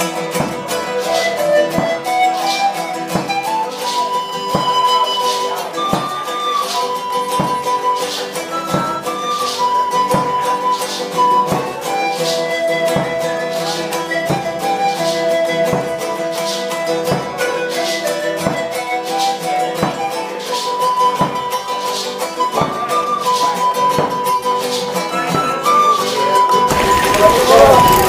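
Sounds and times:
folk-style music with flute: 0:00.0 - 0:28.0.

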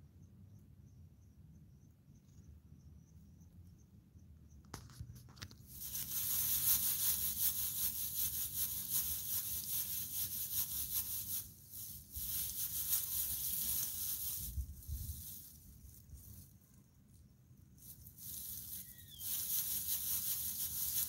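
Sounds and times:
grass stalk rubbing on microphone: 0:05.7 - 0:16.6, 0:17.8 - 0:21.0.

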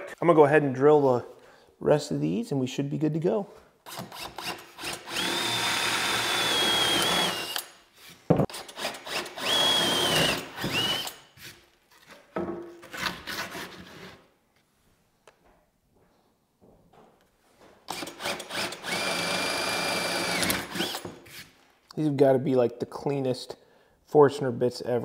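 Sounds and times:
drill whining through wood: 0:03.9 - 0:11.5, 0:17.9 - 0:21.5.

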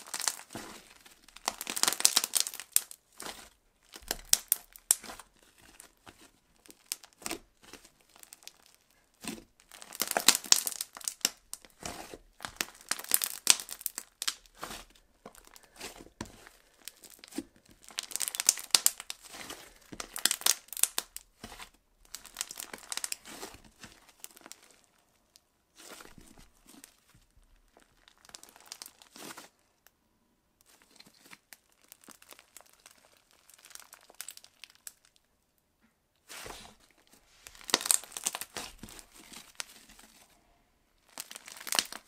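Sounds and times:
foam slime crackling and popping: 0:00.0 - 0:29.7, 0:30.6 - 0:35.2, 0:36.2 - 0:40.4, 0:41.0 - 0:42.0.

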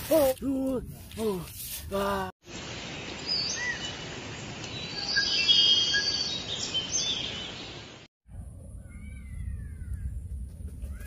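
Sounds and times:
bird chirps and whistles: 0:04.9 - 0:07.5.

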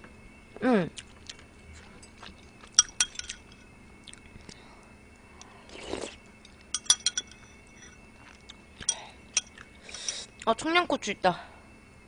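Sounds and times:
metal spoon clinking on bowl: 0:02.7 - 0:03.6, 0:06.7 - 0:08.0, 0:08.8 - 0:10.2
slurping: 0:05.7 - 0:06.2.

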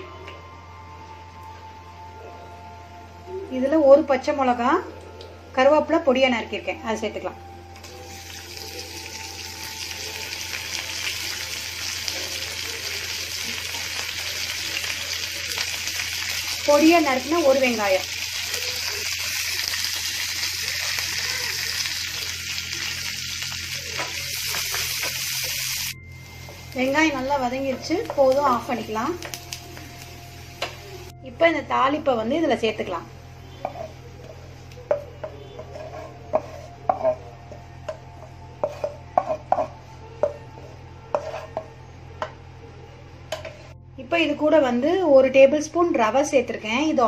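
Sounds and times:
onion sizzling in hot oil: 0:07.8 - 0:31.1
wooden spatula stirring: 0:33.6 - 0:41.7.

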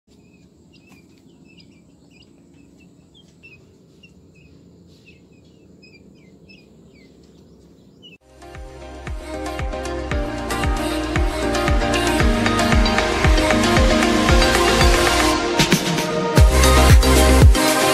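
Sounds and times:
chick peeping: 0:00.1 - 0:08.2.

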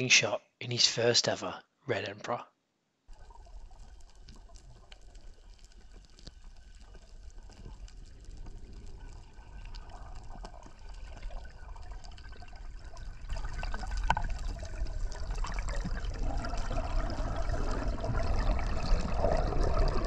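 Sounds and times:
bubbling: 0:03.1 - 0:20.0
crackling clicks: 0:03.1 - 0:20.0
underwater low rumble: 0:03.1 - 0:20.0.

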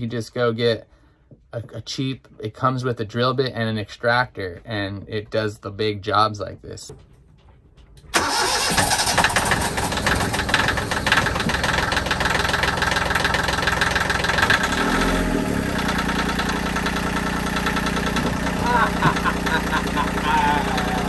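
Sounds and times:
marine diesel engine running: 0:08.2 - 0:21.0.

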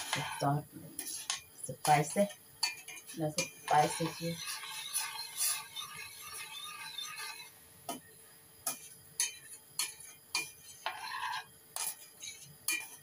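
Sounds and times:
metal spoon clinking in saucepan: 0:02.6 - 0:07.5, 0:08.7 - 0:13.0.

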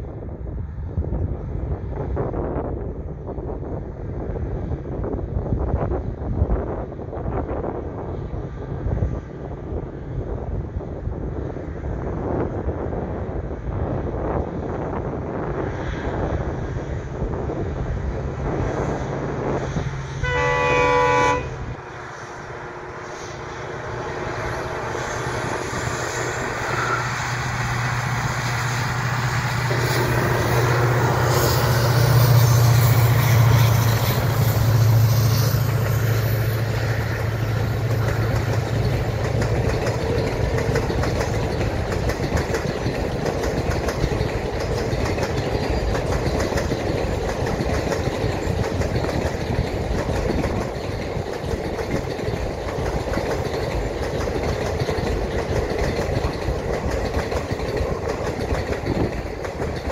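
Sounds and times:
diesel locomotive engine hum: 0:00.0 - 0:59.9
train wheels clattering over rail joints: 0:21.8 - 0:59.9.

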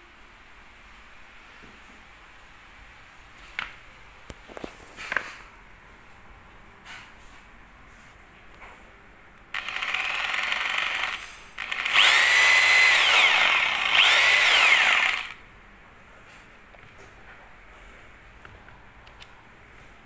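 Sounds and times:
rotary hammer motor running: 0:09.6 - 0:15.4.

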